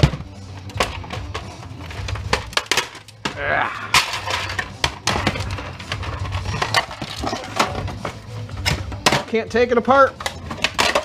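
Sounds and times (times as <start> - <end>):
plastic parts clicking and cracking: 0.0 - 11.0.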